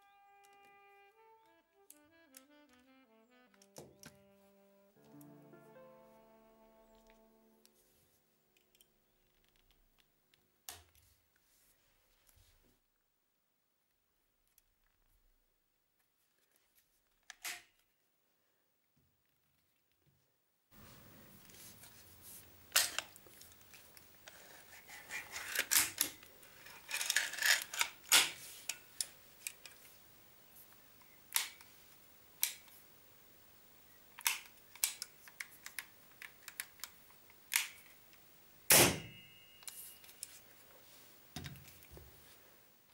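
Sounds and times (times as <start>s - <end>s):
air rifle action clicks and scraping: 22.7s - 29.9s
metallic knock with ring: 39.0s - 39.8s.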